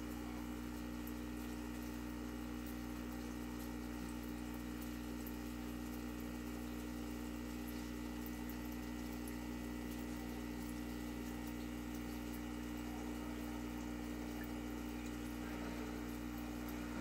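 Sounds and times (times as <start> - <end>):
aquarium pump humming: 0.0 - 17.0
water trickling: 0.0 - 17.0.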